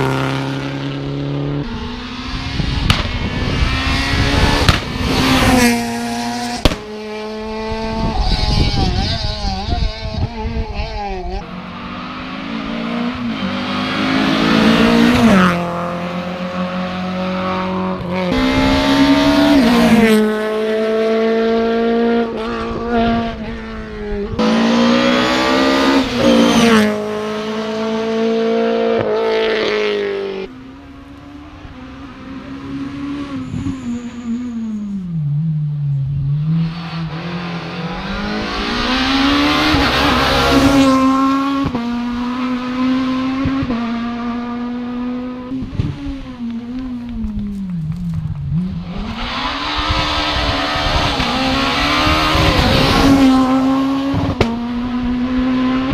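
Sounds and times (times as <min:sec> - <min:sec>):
rally car engines revving: 0:00.0 - 0:55.9.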